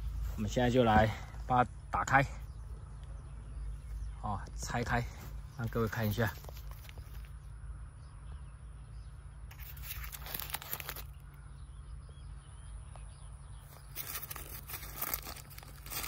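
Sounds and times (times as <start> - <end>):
paper bag crinkling and tearing: 9.5 - 11.3, 13.7 - 16.0.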